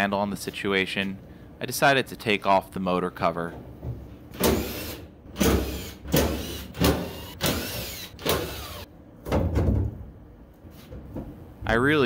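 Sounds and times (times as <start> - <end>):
cordless drill whirring: 4.6 - 8.9.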